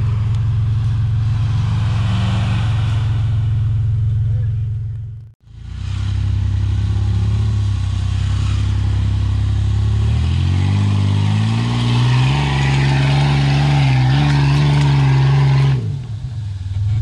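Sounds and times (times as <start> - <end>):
suv engine revving uphill: 0.0 - 17.0.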